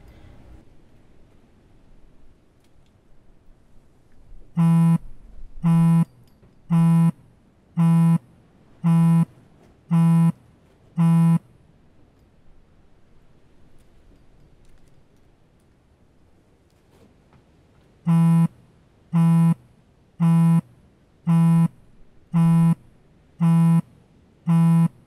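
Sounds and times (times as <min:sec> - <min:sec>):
phone vibrating on wooden bench: 0:04.6 - 0:05.0, 0:05.6 - 0:06.1, 0:06.7 - 0:07.2, 0:07.8 - 0:08.2, 0:08.8 - 0:09.3, 0:09.9 - 0:10.4, 0:11.0 - 0:11.4, 0:18.1 - 0:18.5, 0:19.2 - 0:19.6, 0:20.2 - 0:20.7, 0:21.3 - 0:21.8, 0:22.4 - 0:22.8, 0:23.4 - 0:23.9, 0:24.5 - 0:25.0.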